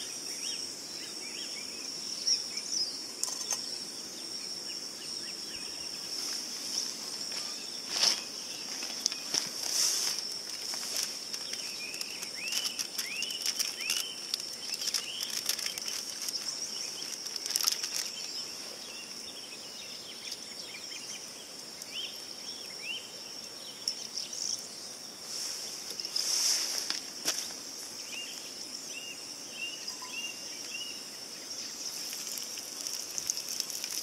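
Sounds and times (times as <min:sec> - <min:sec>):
high insect drone: 0:00.0 - 0:34.0
bird chirping: 0:10.9 - 0:25.0, 0:28.0 - 0:33.6.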